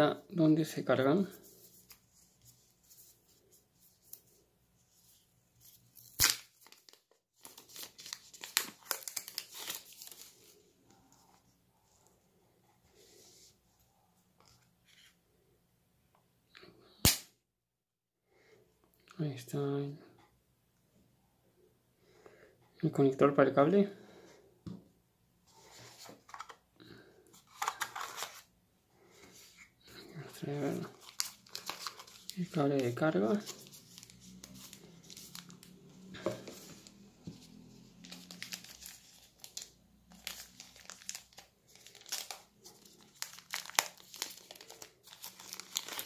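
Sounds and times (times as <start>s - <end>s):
cardboard packaging rustling: 5.0s - 11.4s, 27.3s - 28.5s, 30.3s - 46.0s
plastic film crinkling: 6.0s - 10.6s, 30.3s - 37.0s, 38.0s - 46.0s.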